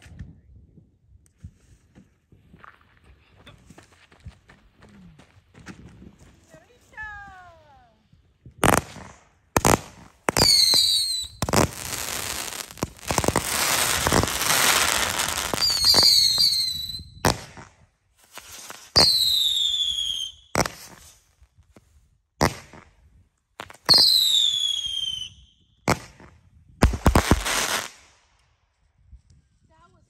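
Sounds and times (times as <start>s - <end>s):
firework crackling: 8.6s - 17.6s, 26.8s - 28.1s
fireworks bangs: 8.6s - 17.7s
falling firework whistles: 10.4s - 11.8s, 14.1s - 17.2s, 18.4s - 21.3s, 23.8s - 25.6s.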